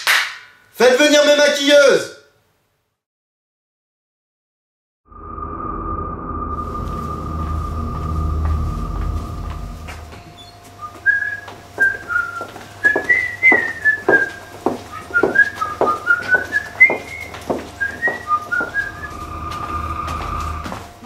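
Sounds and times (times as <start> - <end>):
whistled tune: 6.5 - 20.6.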